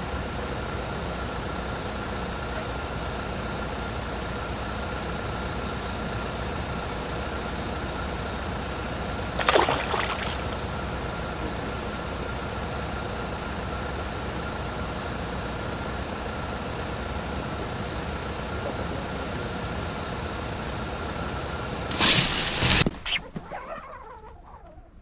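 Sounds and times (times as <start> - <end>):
faint steady hum: 0.0 - 25.0
water rushing: 9.4 - 10.8
rustling clatter: 21.9 - 25.0.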